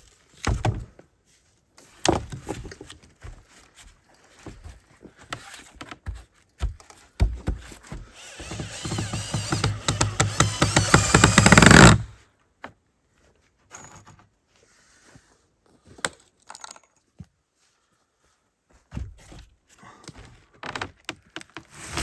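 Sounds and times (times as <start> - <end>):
hand tool rapid strokes on wood: 7.9 - 12.1, 21.6 - 22.0.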